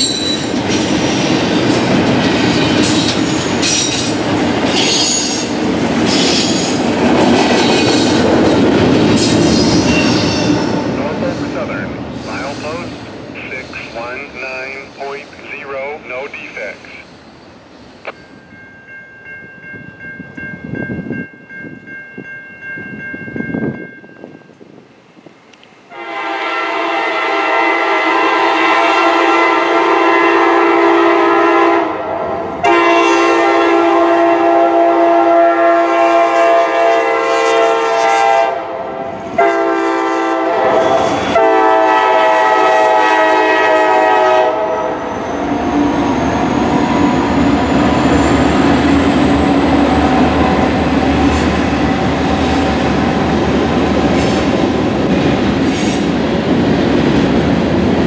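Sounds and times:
train wheels clattering: 0:00.0 - 0:10.7
high squeal: 0:09.6 - 0:10.5, 0:12.2 - 0:14.0
locomotive air horn: 0:25.9 - 0:32.0, 0:32.6 - 0:45.0.

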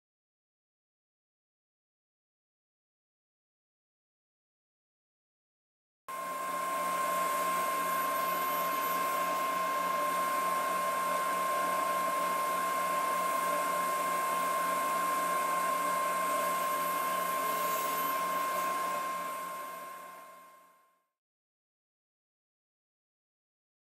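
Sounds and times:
table saw running: 0:06.1 - 0:20.6.

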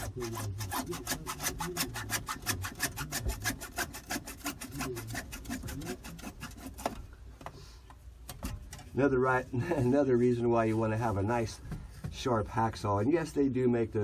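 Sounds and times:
hacksaw cutting plastic pipe: 0:00.0 - 0:07.1.

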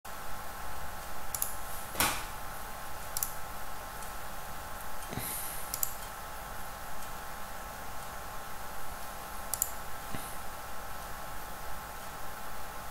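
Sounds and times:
steady background hum: 0:00.1 - 0:12.9
computer mouse clicking: 0:01.3 - 0:01.6, 0:03.1 - 0:03.4, 0:05.7 - 0:06.1, 0:09.5 - 0:09.8.

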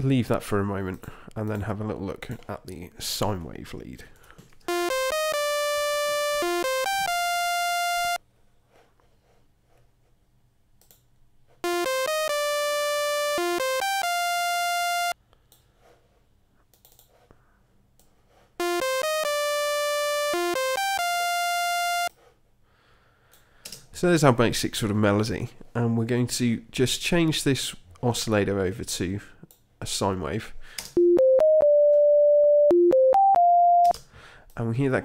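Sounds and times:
buzzy synthesizer lead melody: 0:04.7 - 0:08.2, 0:11.6 - 0:15.2, 0:18.6 - 0:22.1.

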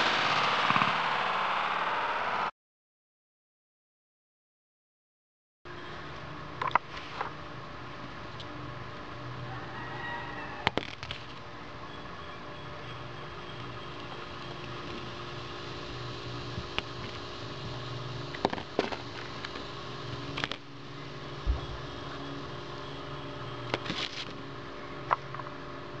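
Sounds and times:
steady mechanical hum: 0:05.7 - 0:26.0.

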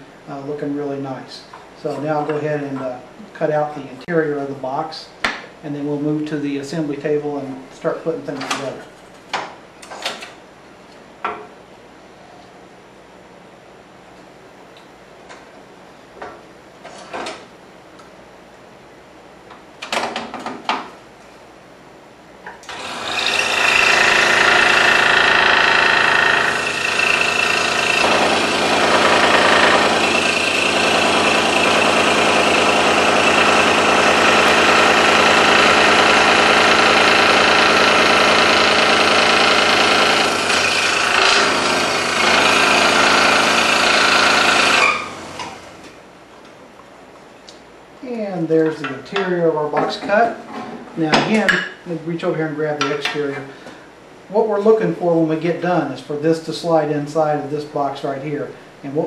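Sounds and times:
scroll saw cutting wood: 0:22.6 - 0:45.7.

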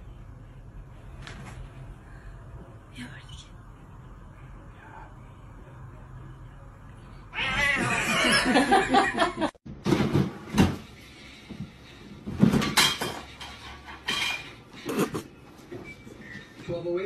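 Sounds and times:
cat call: 0:07.3 - 0:08.1.

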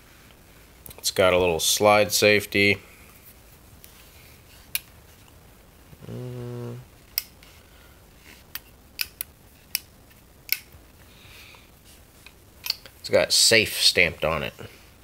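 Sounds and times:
man humming: 0:05.9 - 0:06.9.

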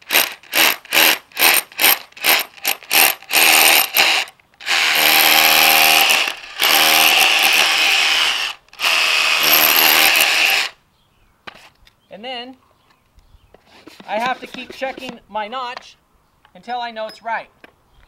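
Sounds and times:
hammer drill boring into concrete: 0:00.0 - 0:10.8.

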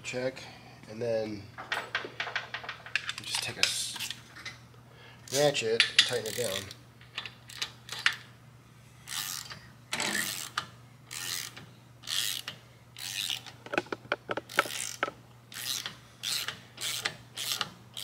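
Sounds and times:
hand ratchet rasping: 0:10.2 - 0:18.0.

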